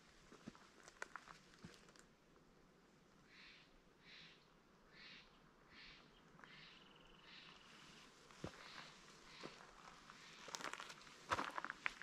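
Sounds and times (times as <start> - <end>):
footsteps crunching on trail: 7.7 - 12.0.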